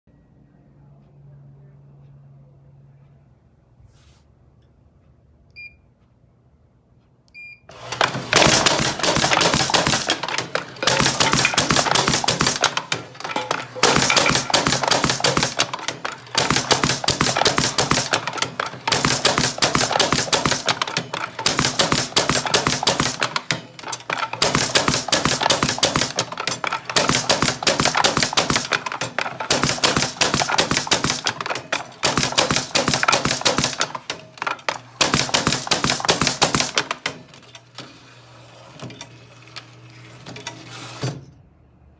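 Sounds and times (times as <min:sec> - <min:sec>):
machine rapid clatter: 0:07.7 - 0:37.8.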